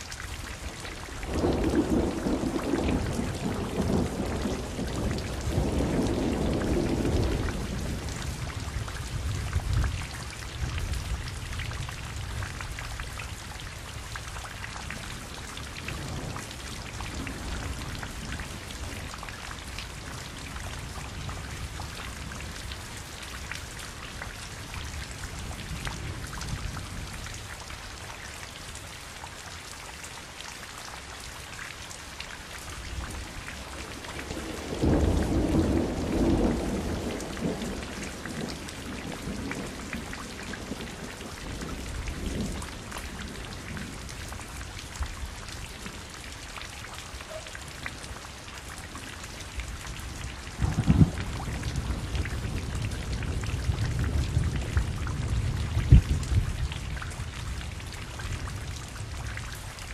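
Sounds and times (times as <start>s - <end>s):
raindrops ticking on a surface: 0.0s - 59.9s
steady rain falling: 0.0s - 59.9s
low roll of thunder: 0.7s - 12.8s, 32.9s - 46.0s, 49.6s - 59.4s.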